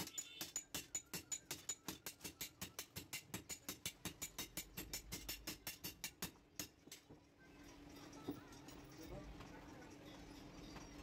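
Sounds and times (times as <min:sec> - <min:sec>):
hammers striking steel on anvil: 0:00.0 - 0:07.2.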